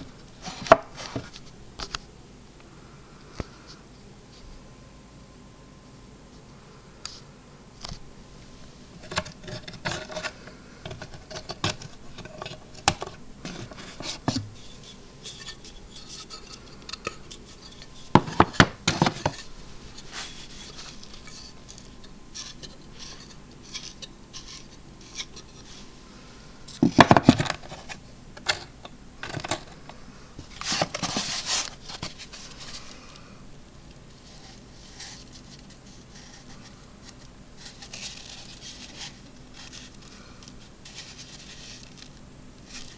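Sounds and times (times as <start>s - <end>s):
scraping rustle: 8.4s - 26.0s, 30.4s - 33.0s, 34.1s - 42.9s
clicks and knocks of wood and metal: 9.0s - 14.5s, 15.3s - 19.5s, 26.7s - 31.3s.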